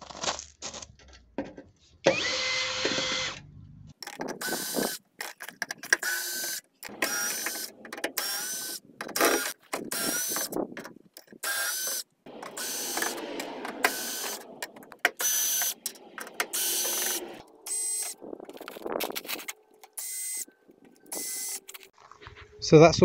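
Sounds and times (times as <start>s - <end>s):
cordless drill whirring: 2.0s - 3.4s, 4.4s - 5.0s, 6.0s - 10.5s, 11.4s - 13.2s.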